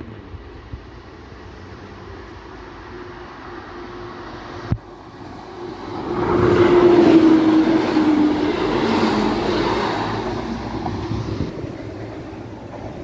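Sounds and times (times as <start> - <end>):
train passing rumble: 0.0 - 13.0.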